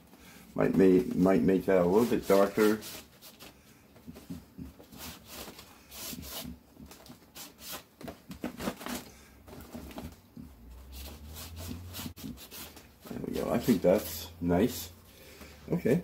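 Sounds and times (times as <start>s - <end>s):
paper towel scrubbing paper: 0.6s - 3.5s, 4.1s - 9.0s, 10.8s - 15.0s.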